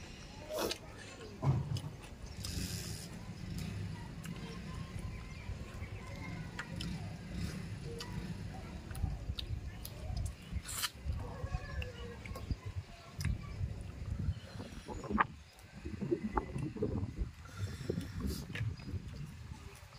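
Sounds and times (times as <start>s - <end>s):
slurping food: 10.5s - 11.1s
steady low rumble: 13.4s - 19.8s.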